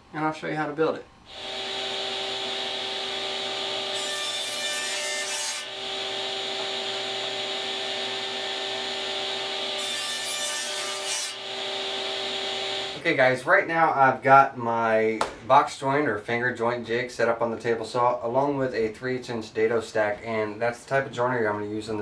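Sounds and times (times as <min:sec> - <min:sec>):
table saw humming: 0:01.3 - 0:13.1.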